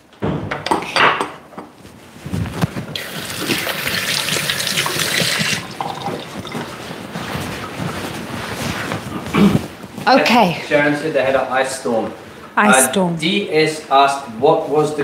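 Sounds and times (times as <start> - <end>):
tap running into sink: 3.0 - 6.7.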